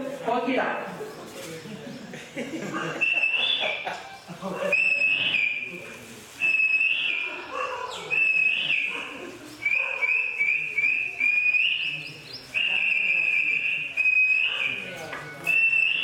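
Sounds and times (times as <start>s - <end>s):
man whistling birdsong: 3.0s - 3.8s, 4.8s - 5.7s, 8.1s - 8.9s, 9.6s - 16.0s.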